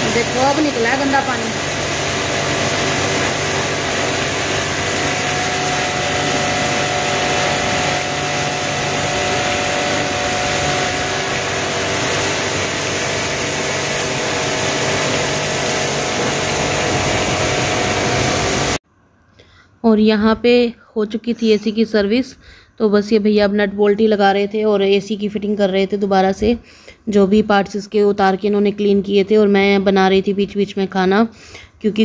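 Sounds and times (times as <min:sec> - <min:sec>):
pressure washer motor humming: 0:00.0 - 0:18.8
water jet hissing: 0:00.0 - 0:18.8.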